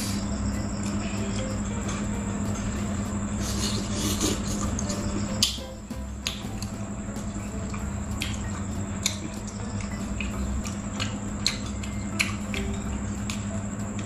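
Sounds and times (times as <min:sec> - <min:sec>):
steady low hum: 0:00.0 - 0:14.0
thin high tone: 0:00.0 - 0:14.0
wet chewing and mouth smacks: 0:07.6 - 0:12.7.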